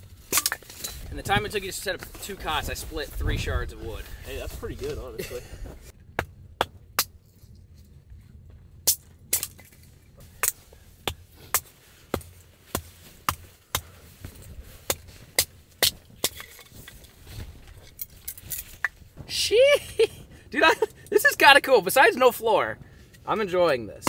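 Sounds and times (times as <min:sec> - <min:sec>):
hatchet chopping firewood: 0:00.2 - 0:01.1, 0:06.0 - 0:07.2, 0:08.8 - 0:17.1.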